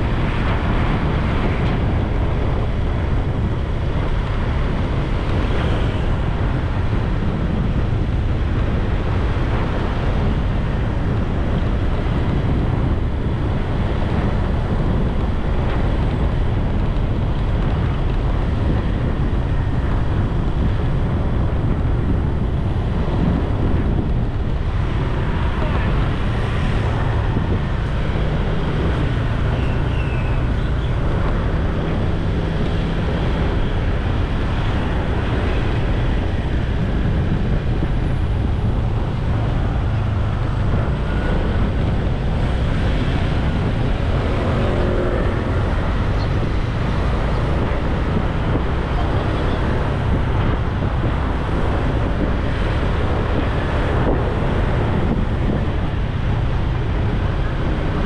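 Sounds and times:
traffic: 0.0s - 58.0s
wind rush on microphone: 0.0s - 58.0s.

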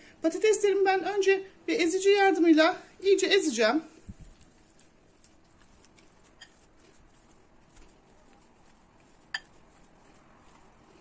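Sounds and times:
potato mashing: 4.1s - 11.0s.

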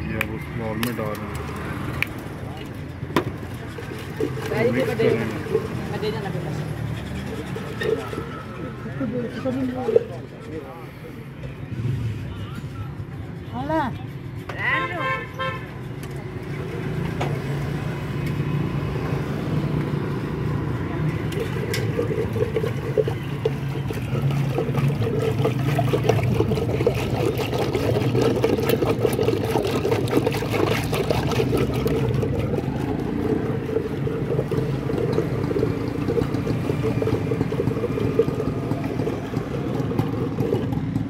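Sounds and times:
liquid sloshing in steel pot: 0.9s - 10.8s, 20.4s - 41.0s.

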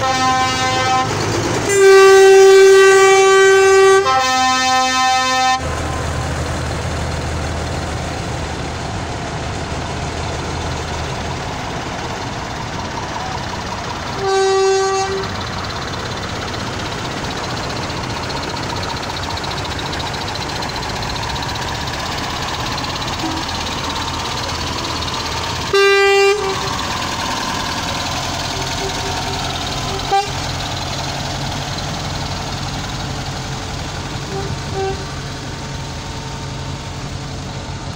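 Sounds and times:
truck horn blast: 0.0s - 5.7s, 14.1s - 15.4s, 23.2s - 23.5s, 25.7s - 26.9s, 28.5s - 30.6s, 34.2s - 35.2s
truck engines running: 0.0s - 37.9s.

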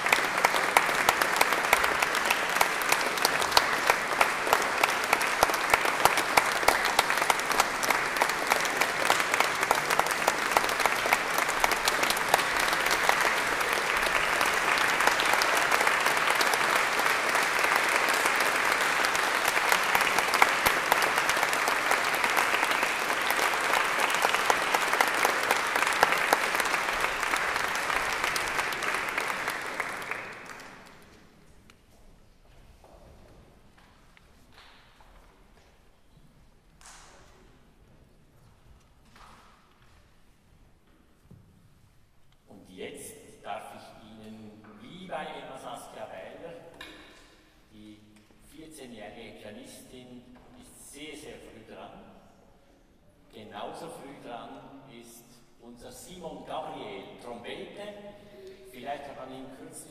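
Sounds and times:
audience applauding: 0.0s - 31.2s.

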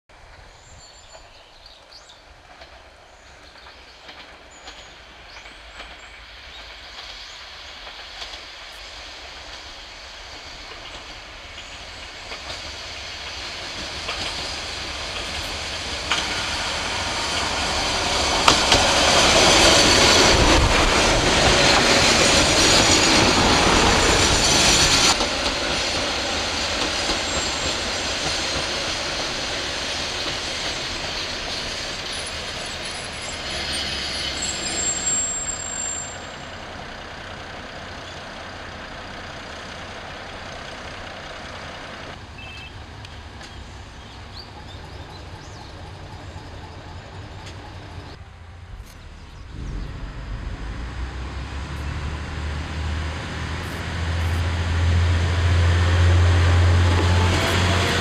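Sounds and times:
diesel railcar passing: 0.1s - 58.0s
wheels clacking over rail joints: 2.4s - 8.8s, 10.6s - 42.2s.

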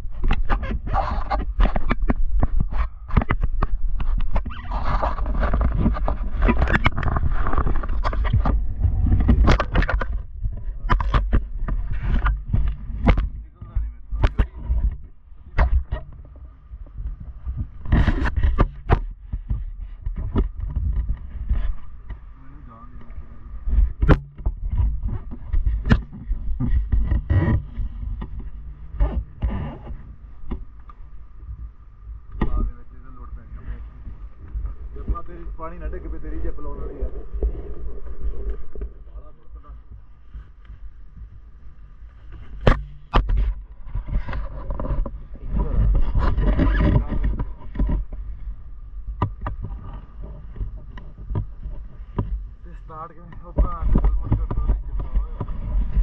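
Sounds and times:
camera handling rumble: 0.0s - 22.4s, 23.0s - 31.1s, 33.6s - 52.5s, 53.2s - 56.0s
sharp clicks and knocks: 0.2s - 22.2s, 23.7s - 31.0s.

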